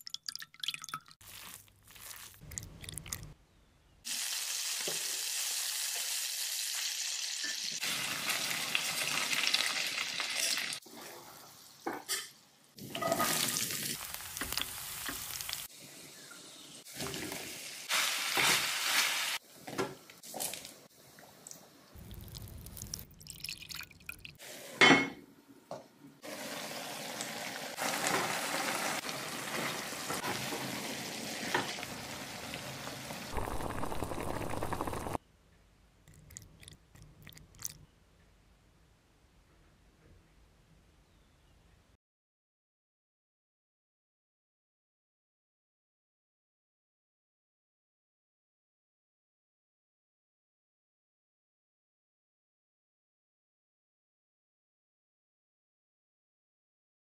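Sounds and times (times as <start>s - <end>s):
food sizzling in hot oil: 1.2s - 2.4s, 4.1s - 10.8s, 12.8s - 19.4s, 26.2s - 35.2s
raw chicken mixed by hand: 1.2s - 3.3s.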